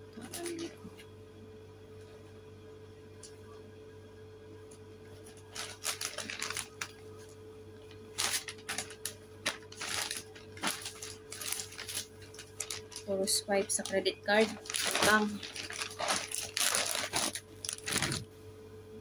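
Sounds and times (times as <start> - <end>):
plastic bag rustling: 5.2 - 7.3, 7.9 - 18.3.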